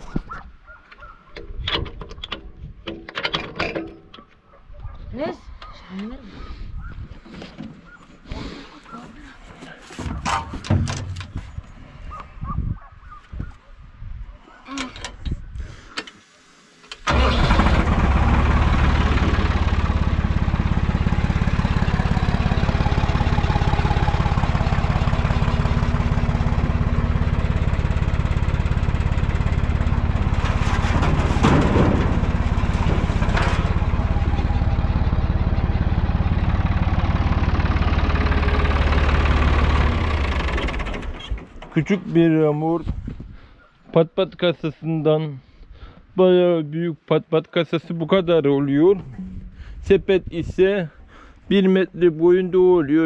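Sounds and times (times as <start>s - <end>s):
tractor diesel engine running: 17.0s - 42.1s.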